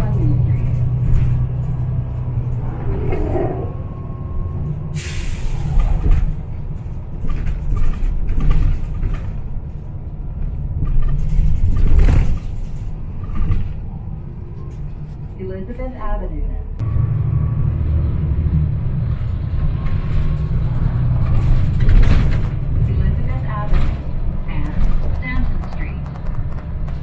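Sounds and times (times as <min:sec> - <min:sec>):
bus engine rumble: 0:00.0 - 0:27.0
air brakes hissing: 0:04.9 - 0:06.2
knocks and rattles: 0:05.8 - 0:13.8.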